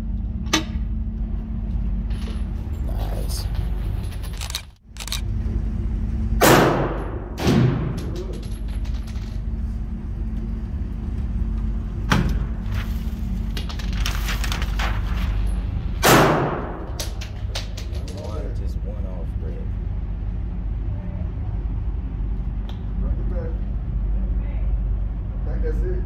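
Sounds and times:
low hum: 0:00.0 - 0:26.0
gunshots echoing indoors: 0:06.4 - 0:08.3, 0:16.0 - 0:17.4.

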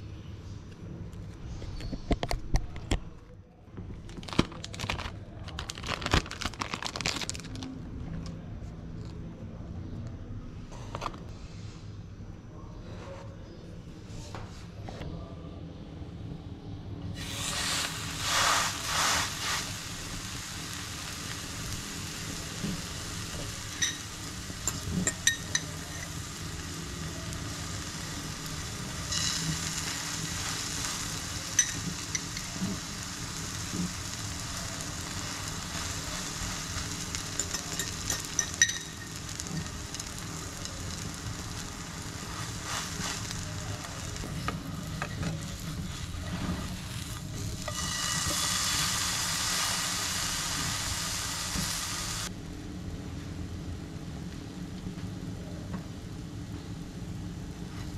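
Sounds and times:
bread sizzling in a pan: 0:17.2 - 0:52.3.

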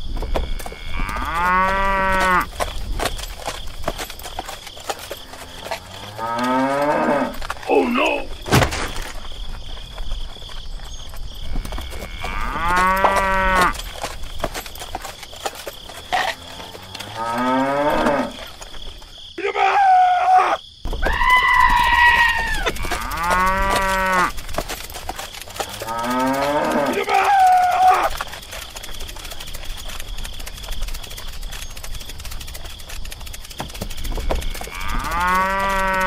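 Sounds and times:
cows mooing: 0:00.2 - 0:02.5, 0:04.9 - 0:08.2, 0:11.5 - 0:13.9, 0:16.0 - 0:18.5, 0:21.4 - 0:28.2, 0:33.8 - 0:36.0.

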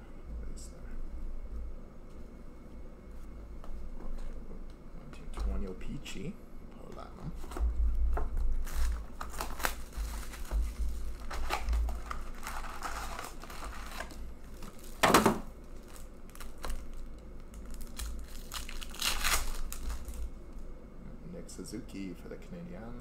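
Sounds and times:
foil pack ripping: 0:08.4 - 0:20.3
foil packs crinkling: 0:08.4 - 0:20.3.

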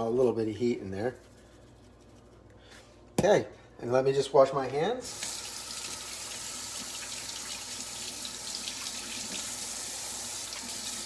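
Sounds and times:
faucet running into sink: 0:05.0 - 0:11.0.

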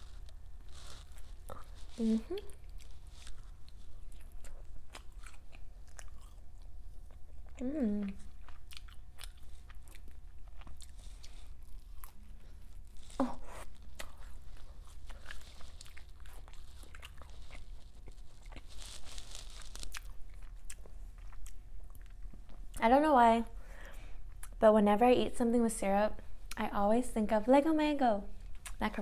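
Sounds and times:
close-miked wet chewing: 0:00.0 - 0:22.8
voice humming: 0:02.0 - 0:02.6, 0:07.6 - 0:08.2.

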